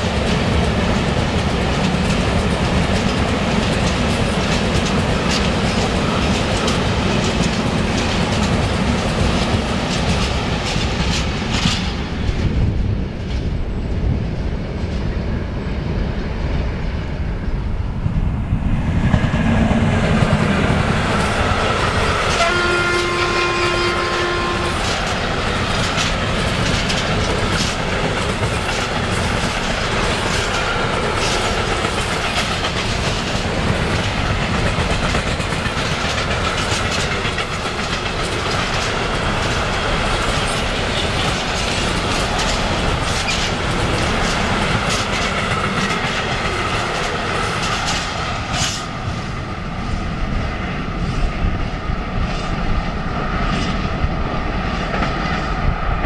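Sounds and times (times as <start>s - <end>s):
train wheels clattering on rails: 0.0s - 15.8s, 18.4s - 56.0s
train horn: 22.3s - 25.0s.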